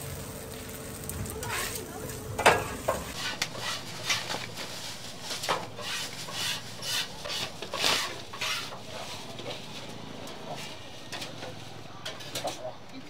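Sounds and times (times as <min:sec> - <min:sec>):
metal spatulas scraping on griddle: 0:01.4 - 0:12.7.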